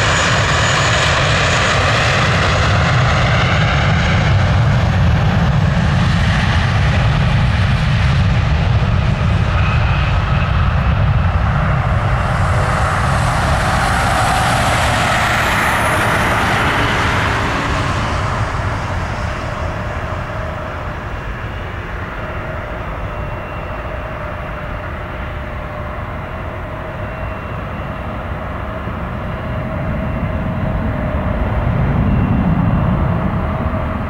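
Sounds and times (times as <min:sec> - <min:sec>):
faint engine whine: 0:00.0 - 0:34.0
jet engines at takeoff: 0:00.0 - 0:34.0.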